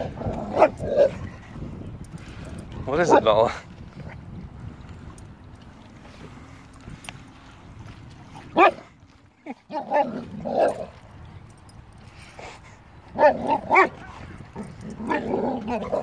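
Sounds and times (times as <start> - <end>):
dog barking and whining: 0.1 - 1.2, 8.6 - 8.8, 9.7 - 10.9, 13.2 - 16.0.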